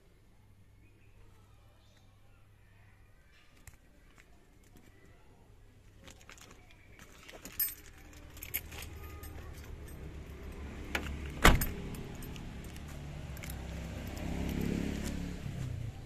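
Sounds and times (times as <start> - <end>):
car door shutting: 10.9 - 11.8.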